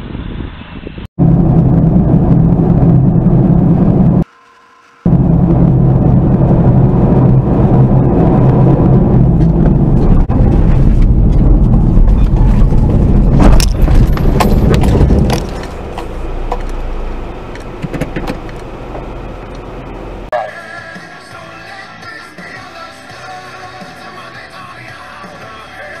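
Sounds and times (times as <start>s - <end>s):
car rumbling over rough ground: 1.2s - 4.3s, 5.0s - 20.3s.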